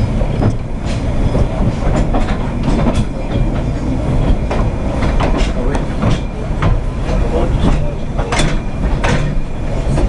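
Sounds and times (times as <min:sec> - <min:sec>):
railway carriage rumbling: 0:00.0 - 0:10.0
wheels clicking over rail joints: 0:01.3 - 0:10.0.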